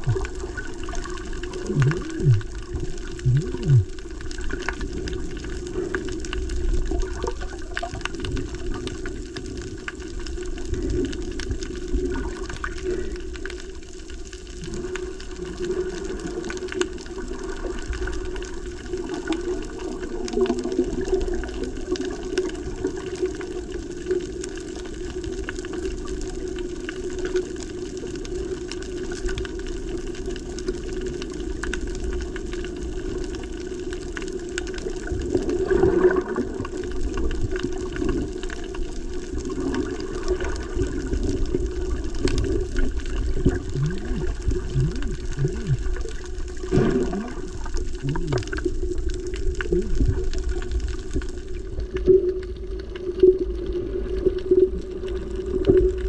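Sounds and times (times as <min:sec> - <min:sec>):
muffled underwater water rush: 0:00.0 - 0:56.0.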